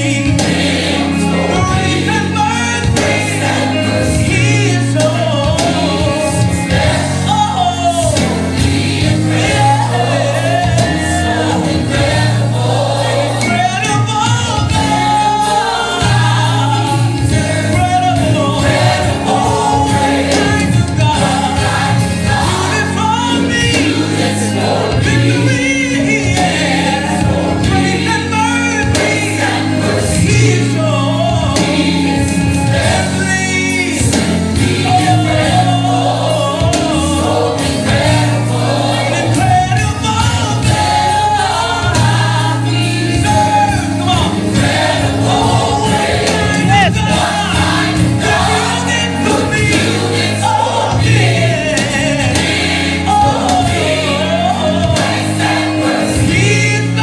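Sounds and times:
low bass line: 0:00.0 - 0:55.1
band playing: 0:00.0 - 0:57.0
gospel choir singing: 0:00.0 - 0:57.0.

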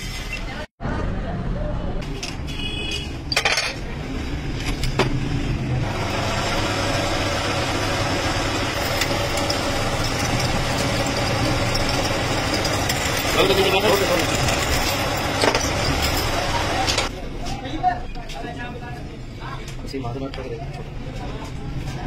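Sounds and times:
lathe motor humming: 0:05.9 - 0:17.1.

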